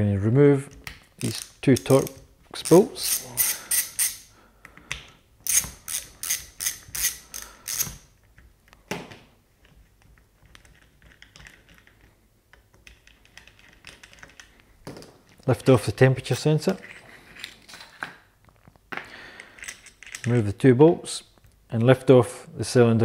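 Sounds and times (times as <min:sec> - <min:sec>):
ratchet clicking: 0:01.2 - 0:04.3, 0:05.4 - 0:08.0
faint handling sounds: 0:09.4 - 0:20.5.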